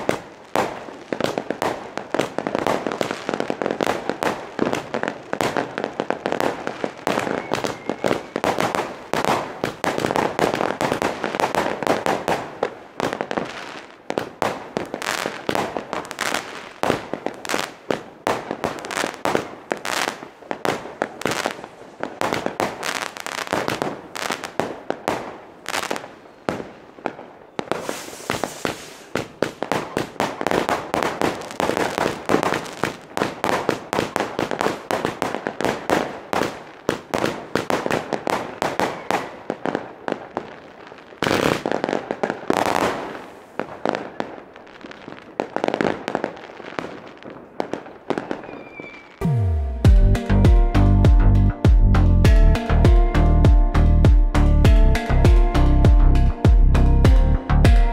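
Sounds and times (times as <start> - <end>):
fireworks hissing and crackling: 0.0 - 49.3
firework launch thumps and bangs: 27.7 - 34.1.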